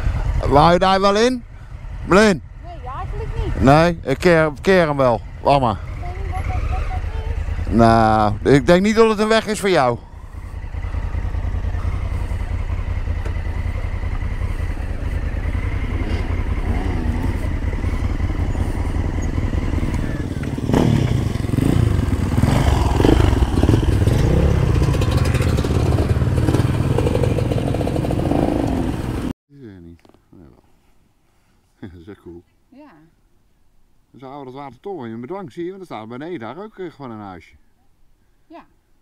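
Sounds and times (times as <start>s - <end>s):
motorcycle engine running: 0.0s - 29.3s.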